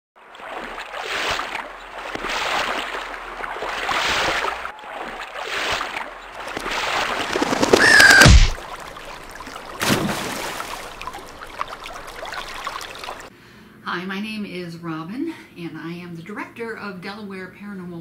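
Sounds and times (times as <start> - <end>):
rushing water in swells: 0.2 - 13.3
bird shrill cry: 7.6 - 8.5.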